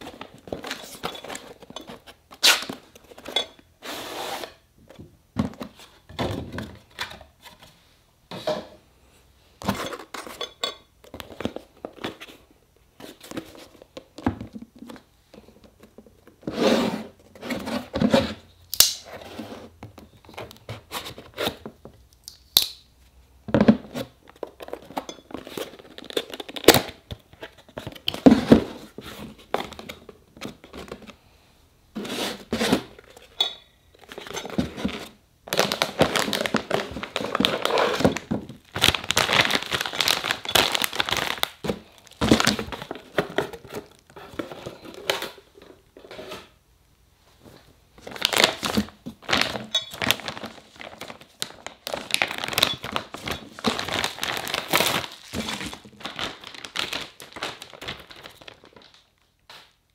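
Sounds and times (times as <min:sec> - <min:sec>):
packaging crinkling and rustling: 0:23.6 - 0:31.2, 0:34.0 - 0:45.8, 0:47.4 - 0:59.9.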